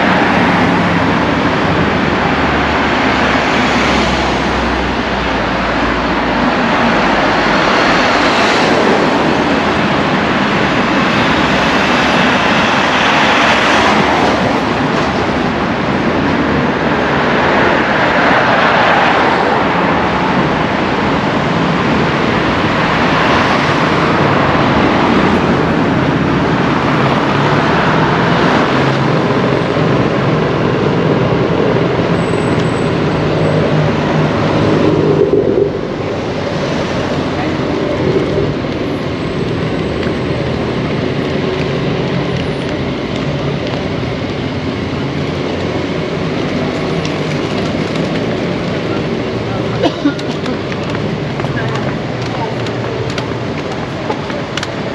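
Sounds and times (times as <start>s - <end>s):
vehicles passing: 0.0s - 54.9s.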